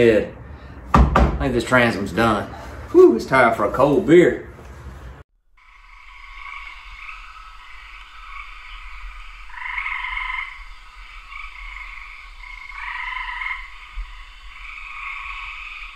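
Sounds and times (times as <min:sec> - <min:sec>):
frogs trilling: 0:05.6 - 0:15.9.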